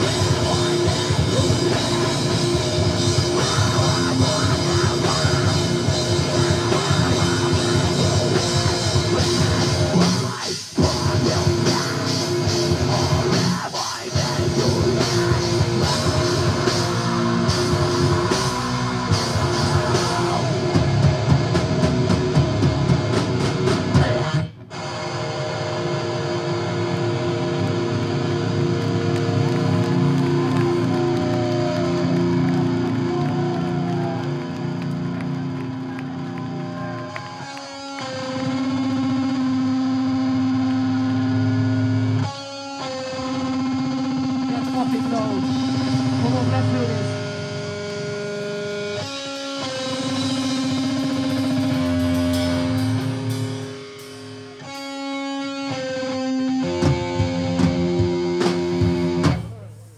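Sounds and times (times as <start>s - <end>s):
electric guitar chords ringing: 0.0s - 59.6s
live rock band playing: 0.0s - 59.9s.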